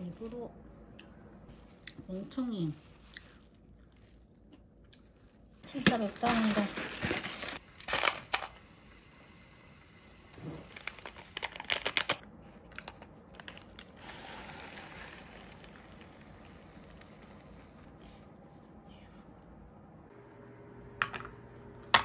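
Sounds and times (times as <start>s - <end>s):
packaging crinkling: 5.0s - 8.6s, 10.6s - 17.9s
water pouring into paper cup: 14.0s - 17.9s.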